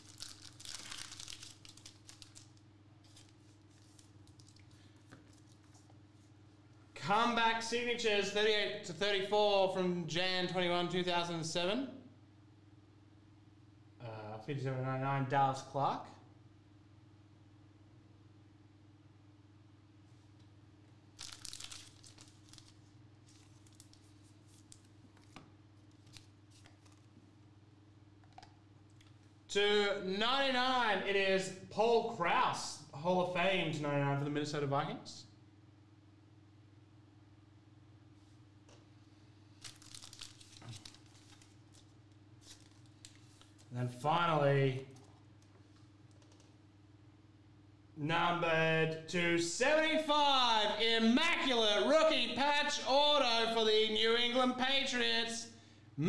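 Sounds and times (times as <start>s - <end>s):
trading cards shuffling: 0.0s - 6.0s, 21.2s - 27.2s, 39.6s - 43.7s
steady electrical hum: 0.0s - 56.0s.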